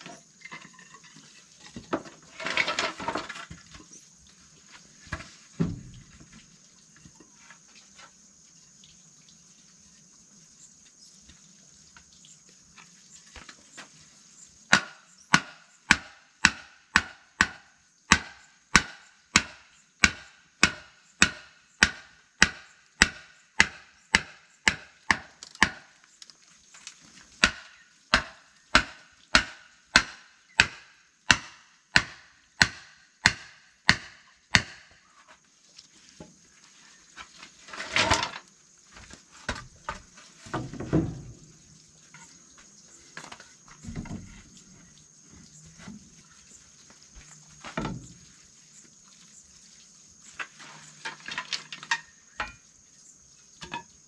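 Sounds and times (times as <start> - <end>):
scraping rustle: 0.0 - 4.0, 35.1 - 52.2
dull thump: 5.1 - 6.0
blade chopping wood: 14.7 - 25.9, 27.4 - 35.0.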